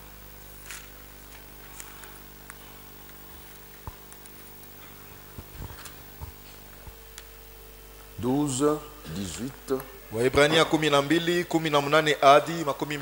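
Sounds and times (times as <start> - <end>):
electrical hum: 0.0 - 13.0
pages being turned: 0.6 - 2.2.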